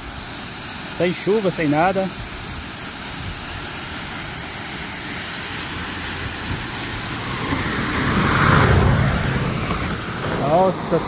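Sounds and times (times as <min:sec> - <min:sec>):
waterfall rushing: 0:00.0 - 0:11.0
car passing fast: 0:05.7 - 0:11.0.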